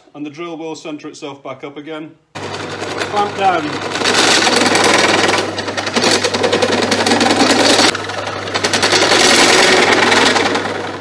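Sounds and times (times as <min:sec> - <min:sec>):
drill grinding chatter: 0:02.4 - 0:10.1
drill press motor hum: 0:02.4 - 0:11.0.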